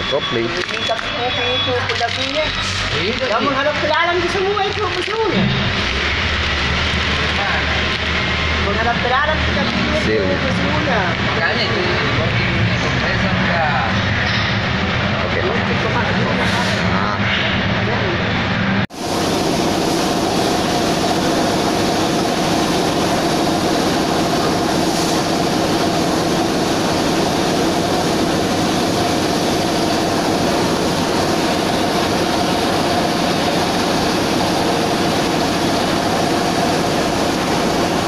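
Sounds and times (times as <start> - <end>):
machine drone humming: 0.0 - 38.0.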